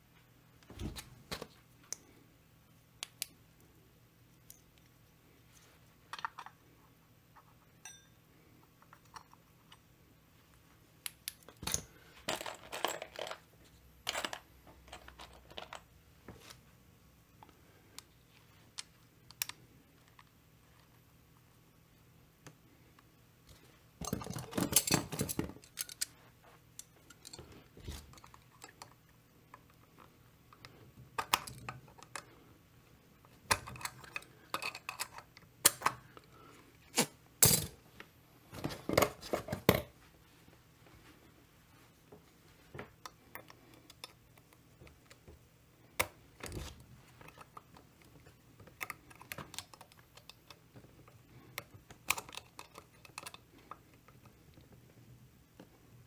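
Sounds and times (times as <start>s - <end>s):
small metal parts clattering: 11.5s - 15.9s, 24.0s - 26.2s, 26.8s - 28.8s.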